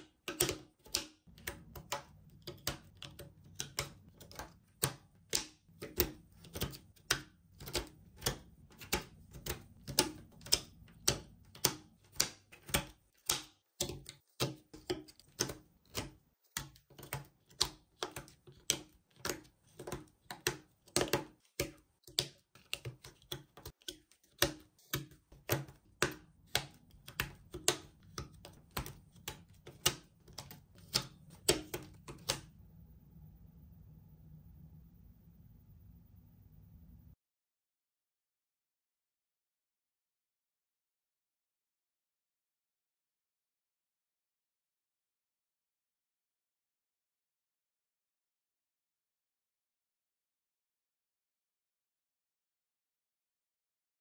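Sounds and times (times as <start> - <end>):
faint low hum: 32.5 - 37.2.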